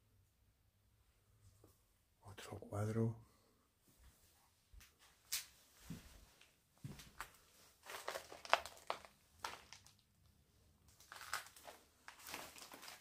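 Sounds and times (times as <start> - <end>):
footsteps crunching on debris: 6.8 - 10.0, 11.0 - 13.0.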